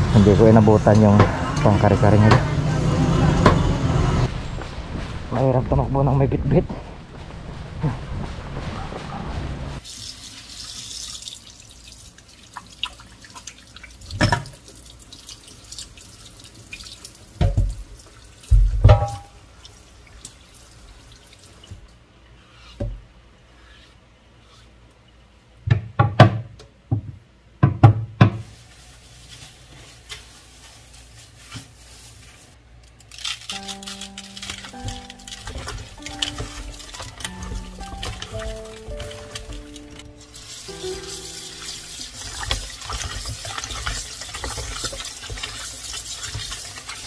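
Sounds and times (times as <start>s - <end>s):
tap water running: 9.8s - 22.0s, 33.5s - 47.0s
board scrubbed by hand: 23.5s - 24.8s.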